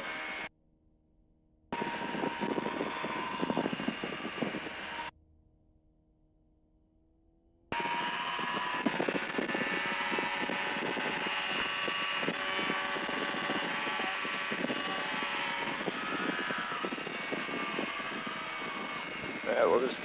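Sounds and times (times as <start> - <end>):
light aircraft engine and propeller: 1.7 - 5.1, 7.7 - 20.0
wind buffeting microphone: 1.7 - 5.1, 7.7 - 20.0.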